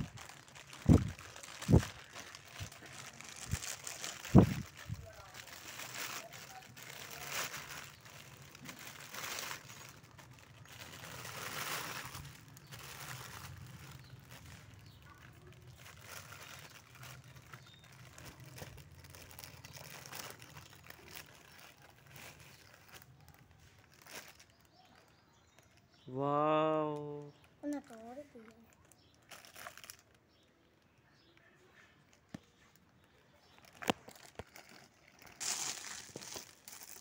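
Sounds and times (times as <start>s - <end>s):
plastic bag crinkling: 0.0s - 25.8s, 27.6s - 30.4s, 32.1s - 37.0s.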